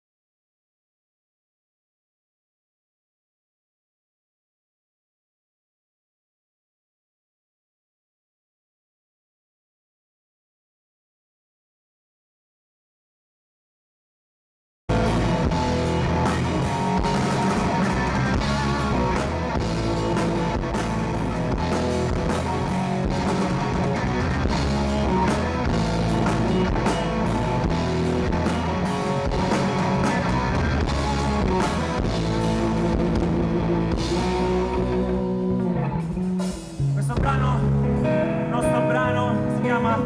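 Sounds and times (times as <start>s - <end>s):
bass guitar: 14.9s - 40.0s
drum kit: 14.9s - 40.0s
electric guitar: 14.9s - 40.0s.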